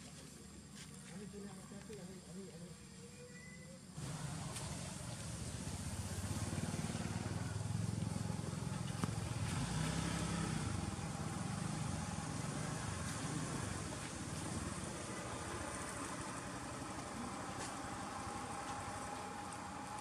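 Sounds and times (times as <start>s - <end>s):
motor engine running at low revs: 4.0s - 20.0s.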